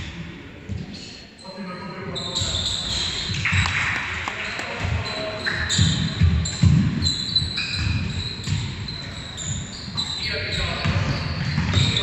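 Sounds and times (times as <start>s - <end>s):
sneaker squeaks: 0.7s - 12.0s
basketball bouncing on wooden floor: 4.7s - 8.9s, 10.8s - 12.0s.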